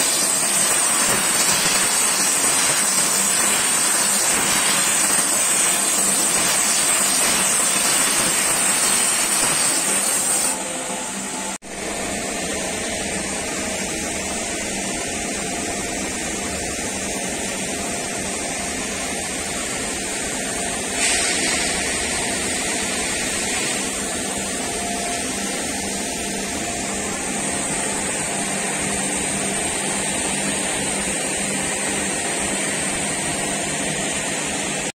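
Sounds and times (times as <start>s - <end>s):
gas torch hissing: 0.0s - 10.9s, 19.6s - 34.3s.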